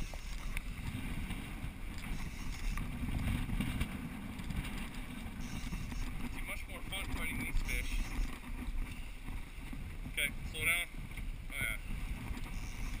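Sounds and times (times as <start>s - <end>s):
boat engine rumble: 0.0s - 13.0s
water rushing past hull: 0.0s - 13.0s
wind buffeting microphone: 0.0s - 13.0s.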